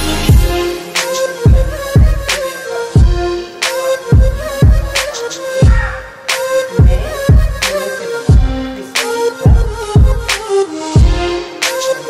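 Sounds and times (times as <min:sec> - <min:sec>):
held melody: 0:00.0 - 0:12.0
low kick drum hits: 0:05.6 - 0:05.9, 0:06.8 - 0:07.7, 0:08.3 - 0:08.6, 0:09.5 - 0:10.3.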